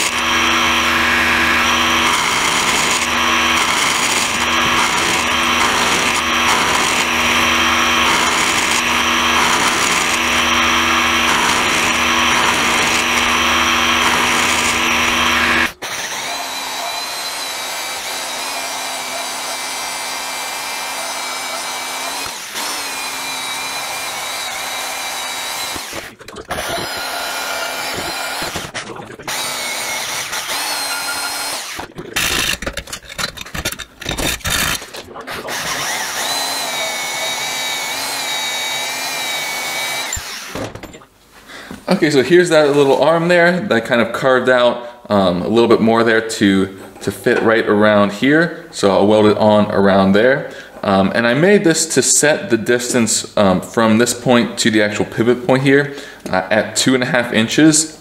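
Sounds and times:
bandsaw cutting steel: 0.0 - 40.7
milling cutter cutting steel: 0.0 - 40.7.

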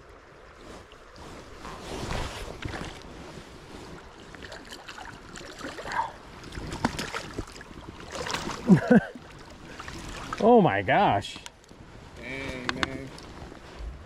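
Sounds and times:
water splashing from thrashing fish: 4.1 - 10.5.

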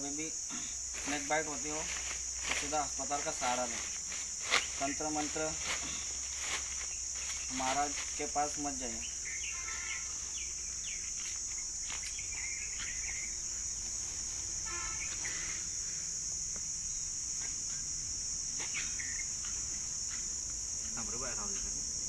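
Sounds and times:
insects droning: 0.0 - 22.0
bird chirps: 9.0 - 13.6, 14.8 - 15.6, 18.6 - 19.4.

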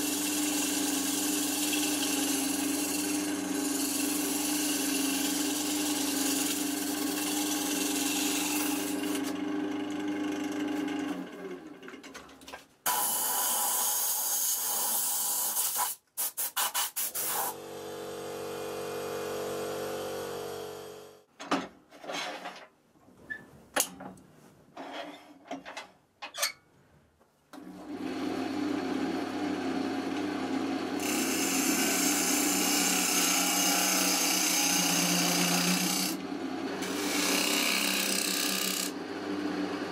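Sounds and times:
gouge cutting wood: 0.0 - 9.3, 31.0 - 36.2, 36.8 - 39.0
wood lathe motor humming: 0.0 - 11.7, 28.0 - 39.8.

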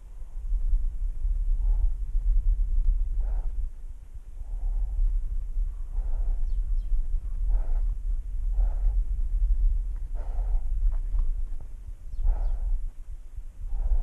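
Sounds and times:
constant low rumble: 0.0 - 14.0
cat breathing heavily: 3.1 - 3.7, 4.4 - 12.9, 13.6 - 14.0.

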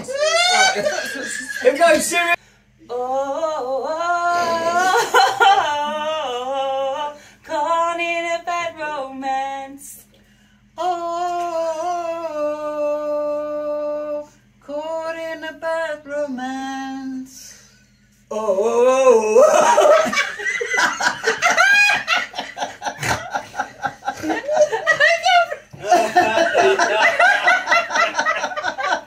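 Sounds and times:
woman singing unaccompanied: 2.8 - 10.1, 10.8 - 17.6.

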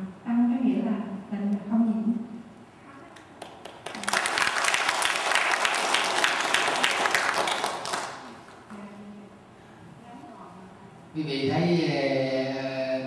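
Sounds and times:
audience applauding: 3.4 - 8.7.

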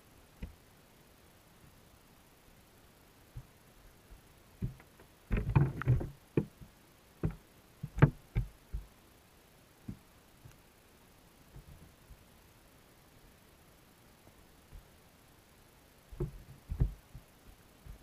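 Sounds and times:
dull underwater knocks: 16.2 - 17.3.

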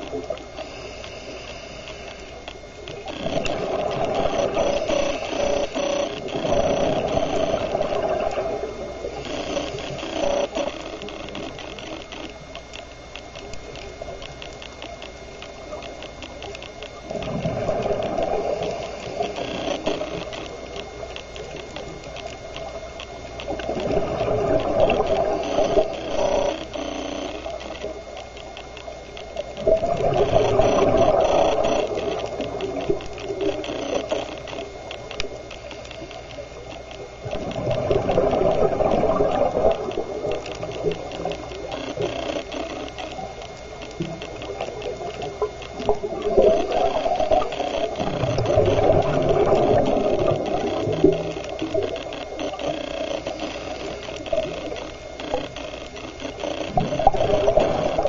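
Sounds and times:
faint fast ticking: 0.0 - 58.0
regulator exhaled bubbles rushing: 17.1 - 18.7, 29.6 - 31.2, 37.2 - 40.8, 45.9 - 51.6, 56.7 - 58.0.

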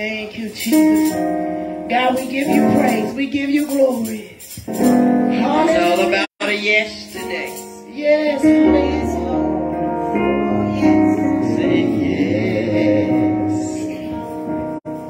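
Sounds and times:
keyboard chords: 0.6 - 15.0
woman singing: 1.9 - 4.3, 5.3 - 14.6.

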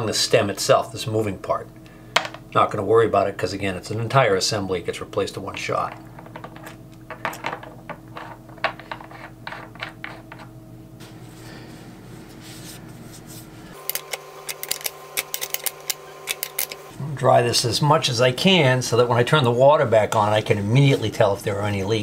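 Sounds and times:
steady low hum: 0.0 - 22.0.

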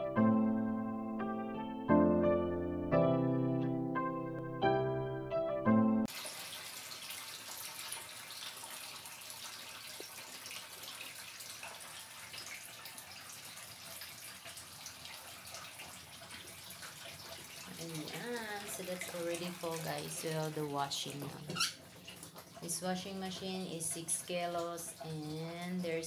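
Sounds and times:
piano music: 0.0 - 6.1
water running into washing machine tub: 6.1 - 26.0.

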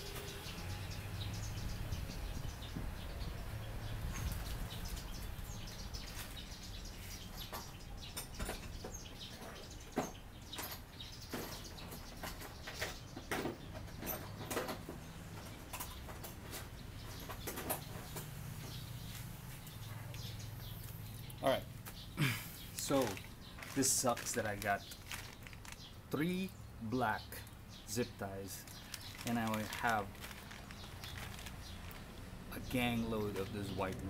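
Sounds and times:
rustling: 22.3 - 26.0, 28.5 - 34.0.

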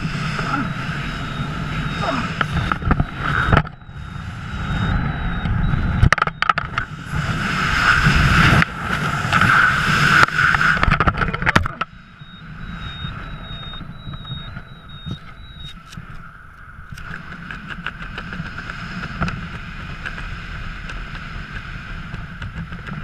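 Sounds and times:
wind buffets: 0.0 - 23.0
wind rushing over microphone: 0.0 - 23.0.

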